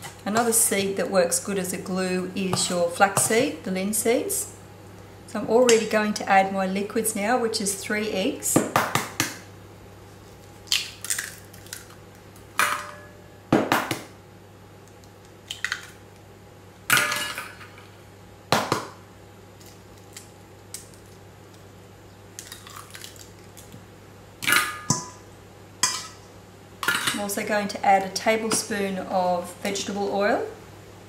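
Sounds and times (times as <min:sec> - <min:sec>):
eggshells cracking against bowl: 0:10.4 - 0:12.5, 0:14.9 - 0:16.2, 0:22.3 - 0:23.8.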